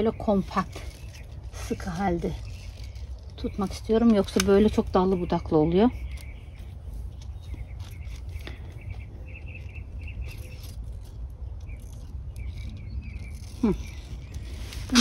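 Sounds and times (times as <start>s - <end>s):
leaves rustling: 0.0s - 15.0s
stems snipping clicks: 3.5s - 5.2s.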